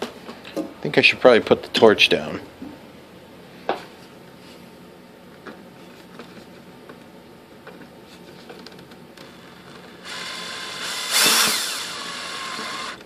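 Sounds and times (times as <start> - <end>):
cordless drill motor running: 9.3 - 13.0
drill bit clicking on screw: 10.0 - 13.0.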